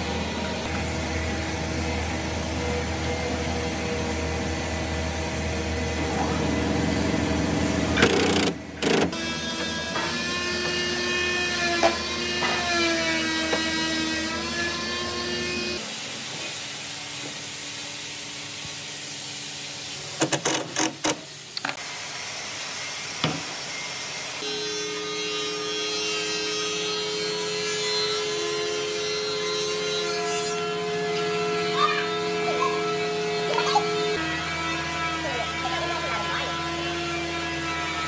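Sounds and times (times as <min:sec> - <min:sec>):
power tool motor whine: 0:06.6 - 0:15.8.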